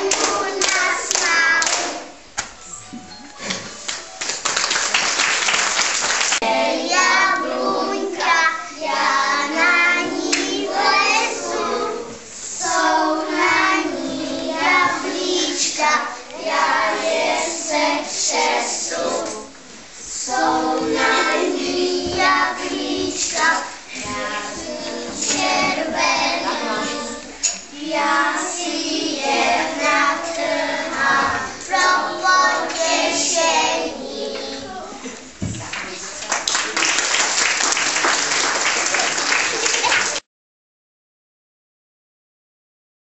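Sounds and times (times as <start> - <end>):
young children singing: 0.0 - 35.4
applause: 3.8 - 6.4, 35.6 - 40.3.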